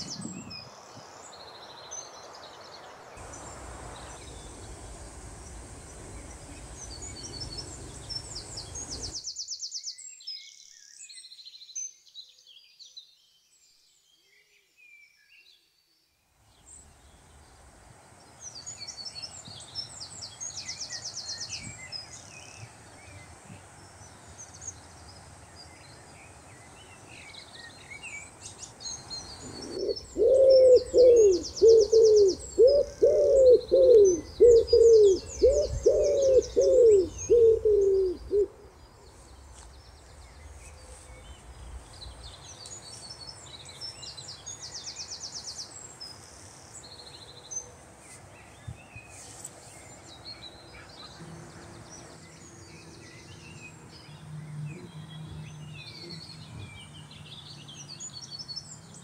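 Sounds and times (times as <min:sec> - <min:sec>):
songbirds chirping and trilling: 0:00.0 - 0:59.0
wood pigeon cooing: 0:29.4 - 0:38.6.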